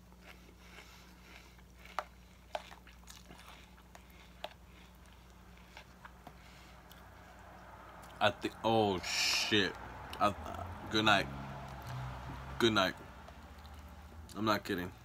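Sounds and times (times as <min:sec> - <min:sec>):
chewing crunchy cereal: 0:00.0 - 0:08.2, 0:11.6 - 0:14.4
low steady hum: 0:00.0 - 0:15.0.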